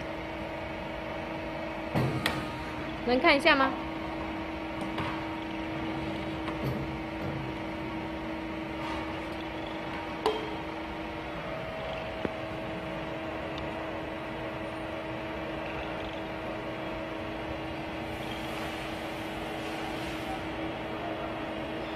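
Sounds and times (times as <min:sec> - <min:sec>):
machine hum: 0:00.0 - 0:21.9.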